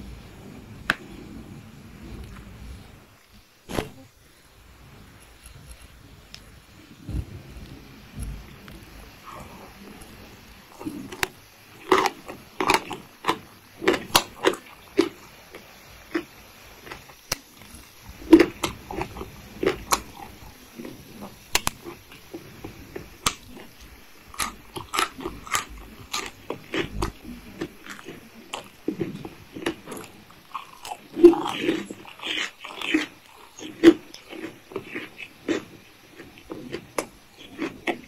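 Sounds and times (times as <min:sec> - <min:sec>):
wet chewing: 0:10.8 - 0:38.0
crisp crunches: 0:23.0 - 0:38.0.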